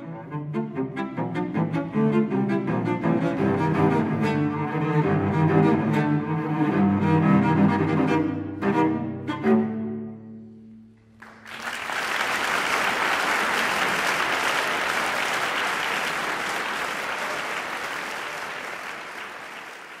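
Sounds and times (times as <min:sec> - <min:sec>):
audience applause: 0:11.2 - 0:20.0.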